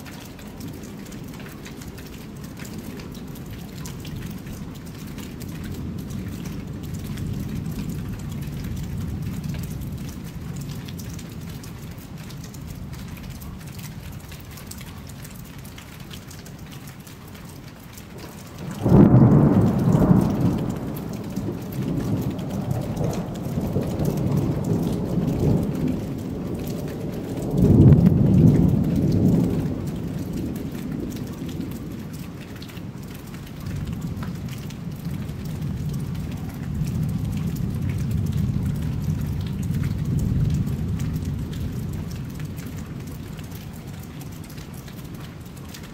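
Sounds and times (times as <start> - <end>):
steady rain: 0.0 - 45.9
thunder: 18.6 - 32.1, 33.7 - 42.8.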